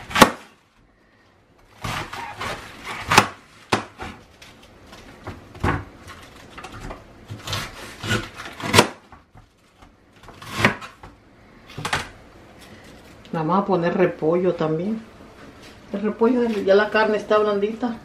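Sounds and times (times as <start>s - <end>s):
knife crunching through cabbage: 1.7s - 4.4s, 7.2s - 9.0s.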